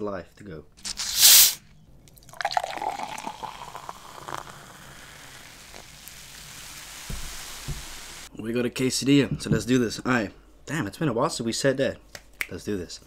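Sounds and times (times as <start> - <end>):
drink fizzing hiss: 0.9 - 1.6, 2.2 - 8.3
drink pouring into a glass: 0.9 - 7.8.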